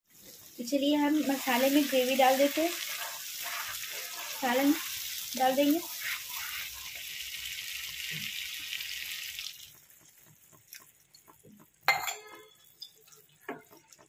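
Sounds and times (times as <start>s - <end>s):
masala sizzling as water poured: 0.1s - 14.0s.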